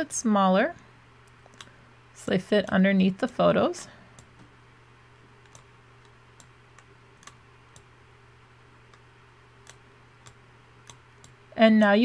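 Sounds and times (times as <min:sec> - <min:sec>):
low steady hum: 0:00.0 - 0:12.0
computer mouse clicking: 0:01.2 - 0:03.4, 0:05.4 - 0:07.9, 0:08.9 - 0:12.0.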